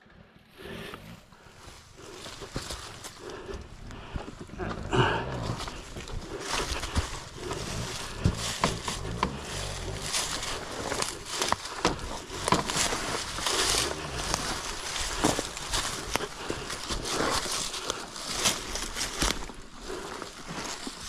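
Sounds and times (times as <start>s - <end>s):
dry leaves crunching: 4.6s - 21.0s.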